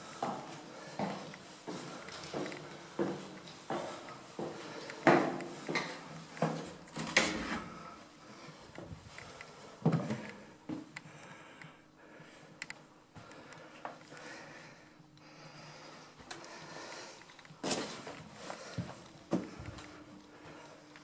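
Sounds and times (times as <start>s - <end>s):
footsteps on steps: 17.5s - 20.6s.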